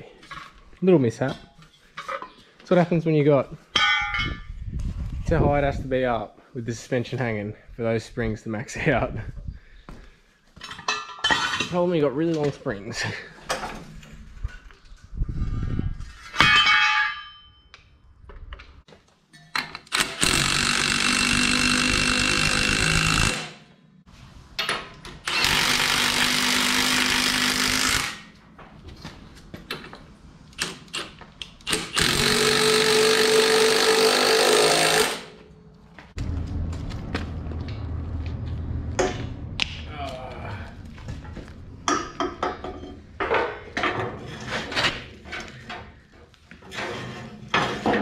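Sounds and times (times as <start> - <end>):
ringing metal clank: 3.7 - 4.6, 16.3 - 17.8
impact wrench: 19.7 - 23.6, 25.2 - 28.3, 30.6 - 35.4.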